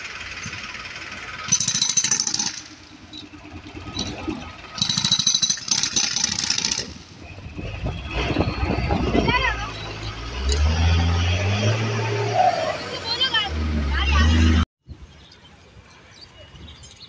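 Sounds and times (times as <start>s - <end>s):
steady engine noise: 0.0s - 14.6s
jackhammer breaking concrete: 1.4s - 2.9s, 4.8s - 7.0s.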